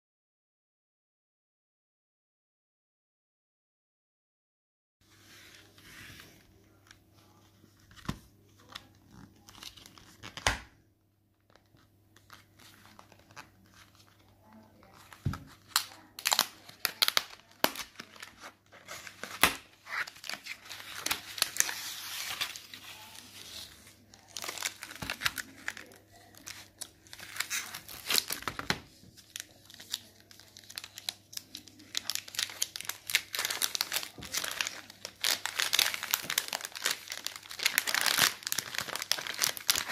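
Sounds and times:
wrapper torn and crinkled: 0:12.2 - 0:39.9.

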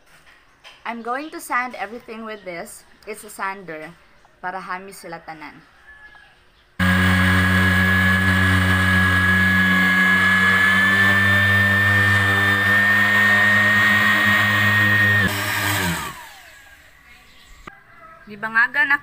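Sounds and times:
orbital sander running: 0:06.8 - 0:17.0.

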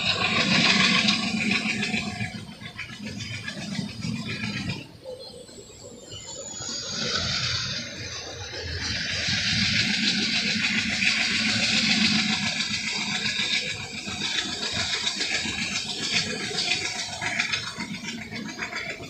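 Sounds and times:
train wheels rushing on rails: 0:00.0 - 0:19.0.

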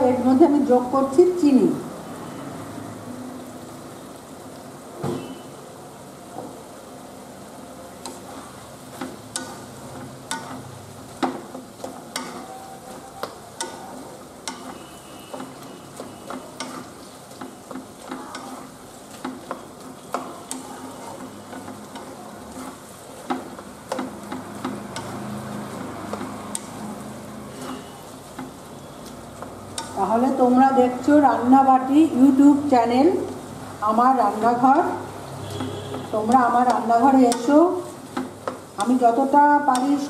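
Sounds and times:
soft sizzle: 0:00.0 - 0:40.0
wooden spatula scraping a pan: 0:08.0 - 0:32.6, 0:33.2 - 0:40.0.

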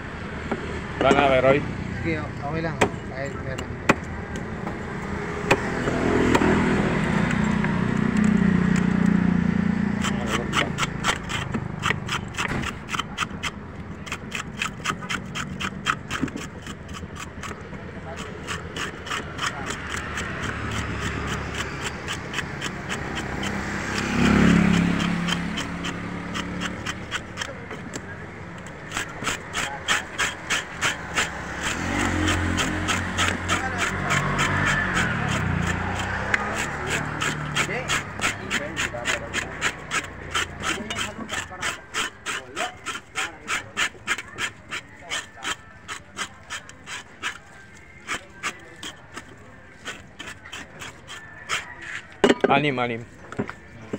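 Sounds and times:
motorcycle passing: 0:00.0 - 0:53.9
vehicle engine hum: 0:00.0 - 0:53.9
knife scraping fish scales: 0:09.9 - 0:52.2.

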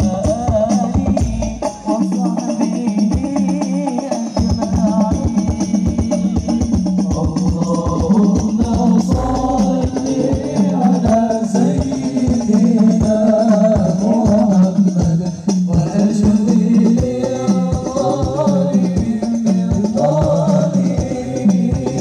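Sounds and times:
devotional chant singing: 0:00.0 - 0:22.0
frame drums beat: 0:00.0 - 0:22.0
jingling tambourine: 0:00.0 - 0:22.0.

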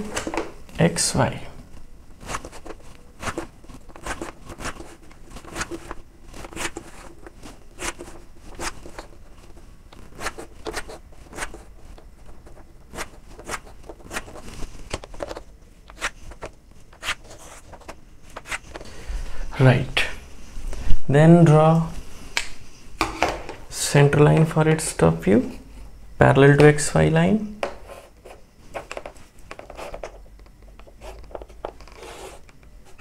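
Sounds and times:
chalk scratching on chalkboard: 0:02.2 - 0:09.2, 0:10.1 - 0:11.7, 0:12.3 - 0:14.6, 0:15.9 - 0:18.7, 0:27.8 - 0:28.4, 0:31.0 - 0:31.2, 0:31.9 - 0:33.0.

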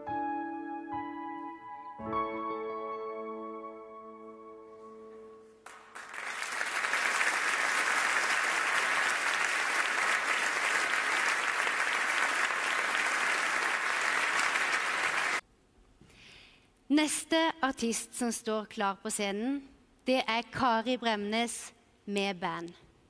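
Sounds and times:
audience applause: 0:05.6 - 0:15.4.

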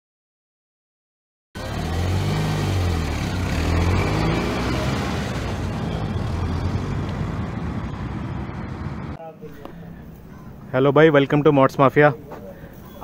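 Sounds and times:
car engine rumbling: 0:01.6 - 0:10.7.

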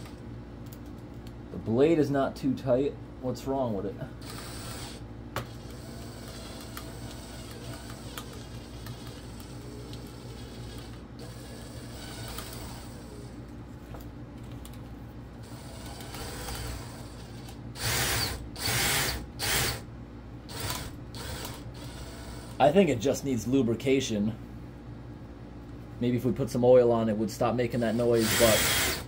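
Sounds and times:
drill powered mini chainsaw running: 0:17.8 - 0:19.8, 0:20.5 - 0:22.6, 0:27.8 - 0:29.0.

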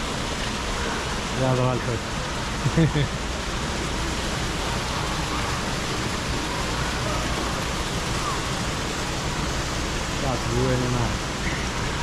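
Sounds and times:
waterfall splashing into pool: 0:00.0 - 0:12.0
faint voices: 0:03.9 - 0:12.0.

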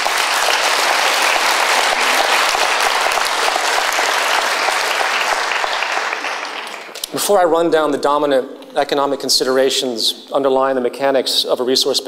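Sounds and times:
large audience applauding: 0:00.0 - 0:07.0.

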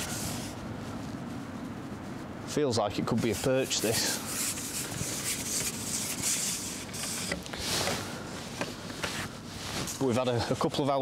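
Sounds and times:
fishing pole handling rustle: 0:03.4 - 0:10.5.

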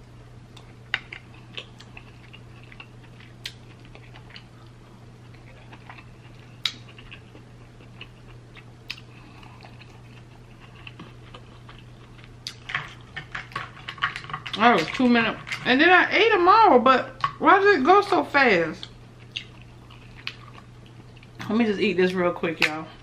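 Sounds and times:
steady low hum: 0:00.0 - 0:23.0
person chewing: 0:00.5 - 0:15.6, 0:18.8 - 0:21.4.

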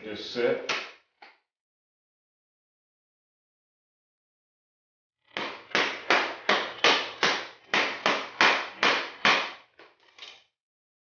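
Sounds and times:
hammer striking plastic pipe: 0:05.3 - 0:09.7.

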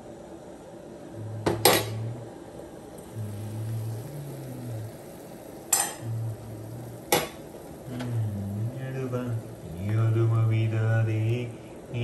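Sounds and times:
low hum: 0:00.0 - 0:12.0
oil sizzling: 0:01.6 - 0:12.0.

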